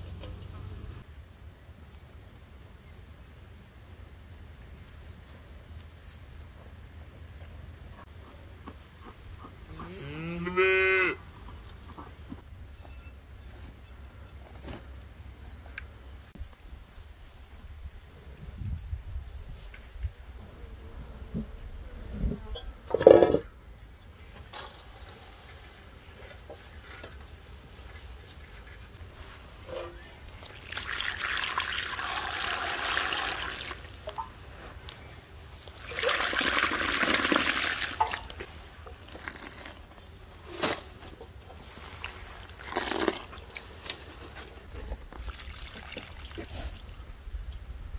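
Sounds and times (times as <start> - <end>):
high insect trill: 0.0 - 47.9
cow mooing: 9.7 - 11.2
water pouring into metal bowl: 30.4 - 33.8.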